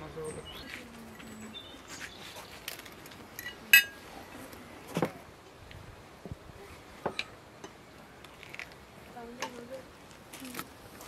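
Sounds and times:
tableware clinking: 3.4 - 4.0.

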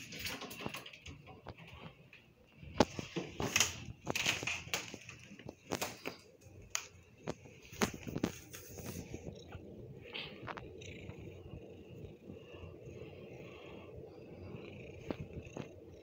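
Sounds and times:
cat playing on carpet: 2.6 - 10.7.

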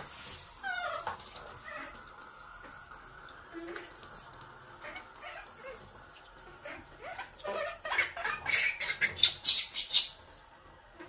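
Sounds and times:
shower water running: 0.0 - 11.0
baby monkey squealing: 6.7 - 10.2.

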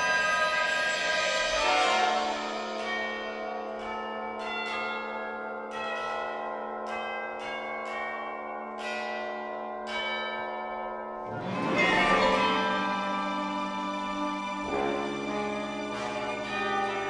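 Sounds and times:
orchestral chord: 0.0 - 3.8, 11.3 - 17.0
tubular bells ringing: 0.0 - 17.0.

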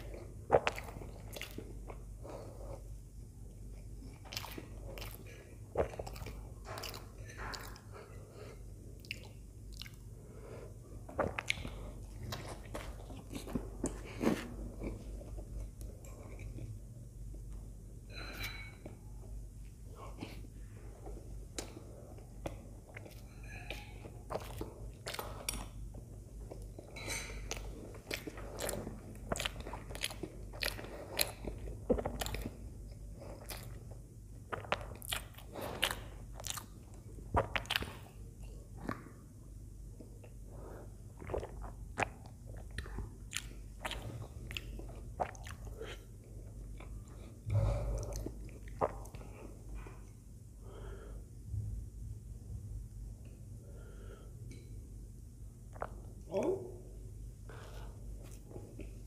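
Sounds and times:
wet chewing mouth sounds: 0.0 - 2.5, 3.7 - 10.1, 11.1 - 16.8, 21.6 - 39.1, 41.0 - 50.2, 55.7 - 56.1.

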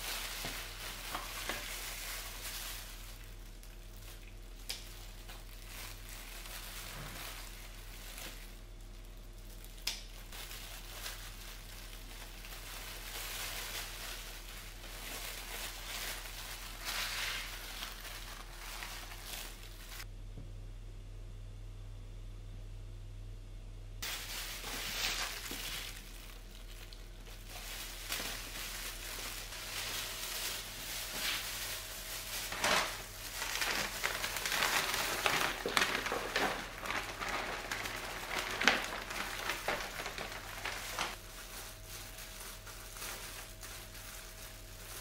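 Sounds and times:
potting soil rustling: 24.0 - 45.0.

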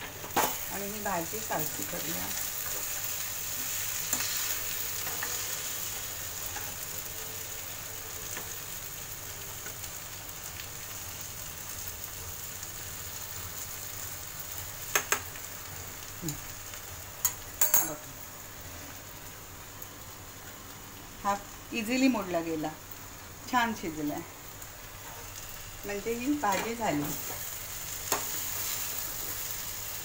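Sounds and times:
vegetables sizzling in a pan: 0.0 - 30.0.

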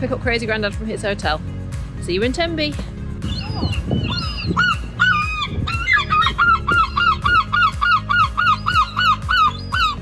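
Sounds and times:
herring gulls calling: 3.2 - 10.0
juvenile gull begging calls: 3.2 - 10.0.

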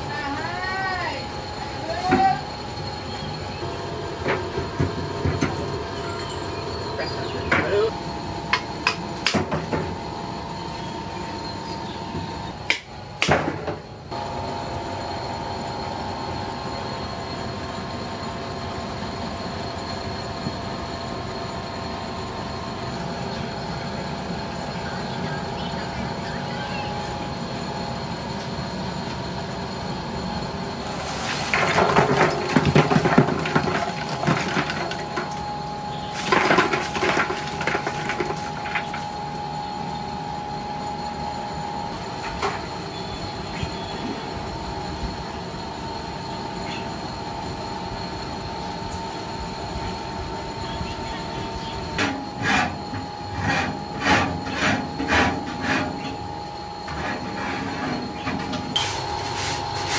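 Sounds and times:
mechanical hum: 0.0 - 59.9
metal clattering and scraping: 56.8 - 59.9.

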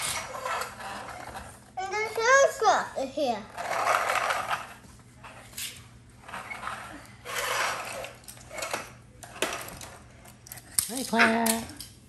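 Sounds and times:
plastic toys scraping on tile: 0.0 - 2.4, 3.3 - 10.4.

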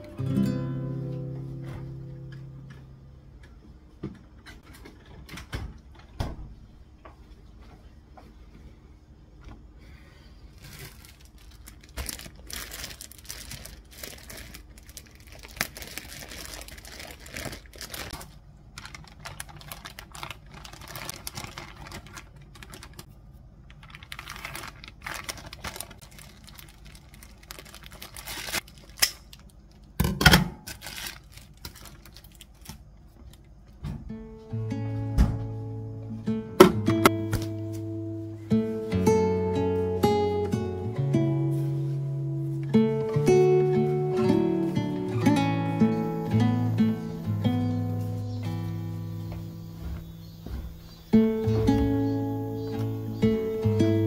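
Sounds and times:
plastic bag rustling: 10.4 - 29.9, 30.6 - 33.6.

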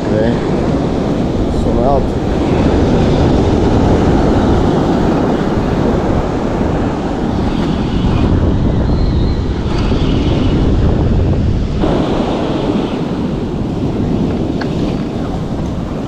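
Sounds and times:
ocean surf breaking: 0.0 - 16.0
wind buffeting microphone: 0.0 - 16.0.

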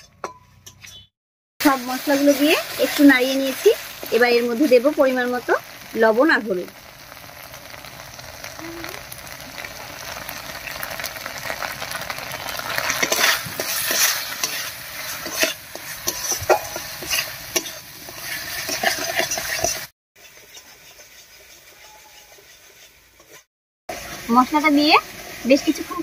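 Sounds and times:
metal spatula scraping pan: 0.0 - 1.1, 12.7 - 23.5
paste sizzling in oil: 1.6 - 26.0.

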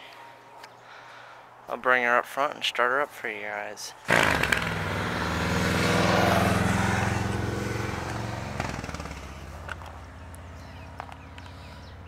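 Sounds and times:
engine running: 4.1 - 11.7.

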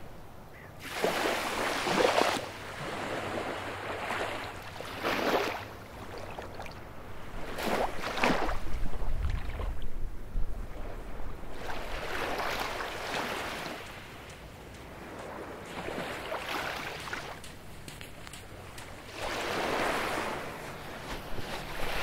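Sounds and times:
waves breaking on a beach: 0.8 - 22.0
wind rumble on microphone: 6.8 - 12.8.

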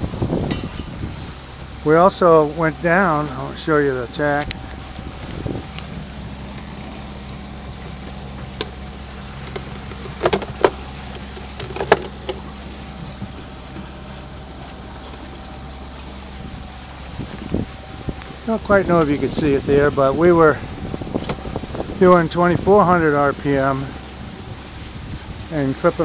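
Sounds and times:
diesel engine drone: 0.0 - 26.0
faint steady whine: 0.0 - 26.0
sharp knocks: 0.4 - 1.2.

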